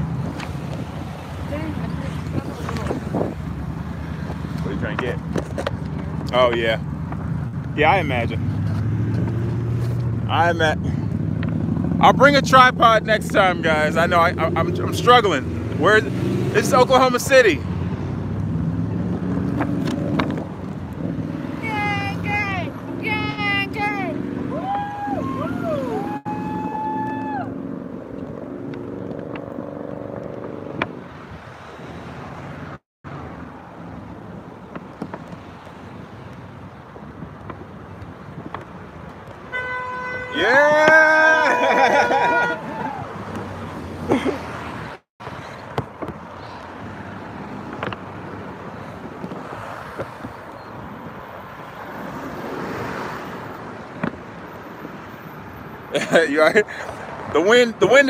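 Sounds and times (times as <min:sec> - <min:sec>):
wind buffeting microphone: 0:00.0 - 0:06.6
road traffic rumble: 0:00.0 - 0:58.0
car horns honking: 0:39.5 - 0:42.9.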